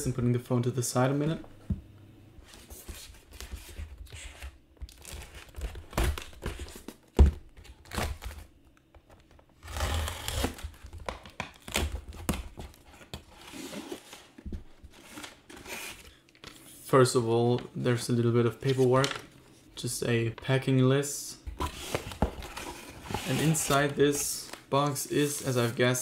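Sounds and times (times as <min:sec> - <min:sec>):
cardboard flaps rustling and scraping: 0:21.5 - 0:26.0.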